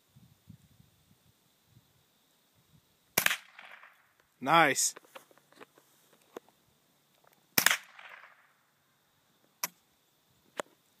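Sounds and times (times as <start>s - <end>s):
rifle shot with echo: 3.2s - 3.9s, 7.6s - 8.4s.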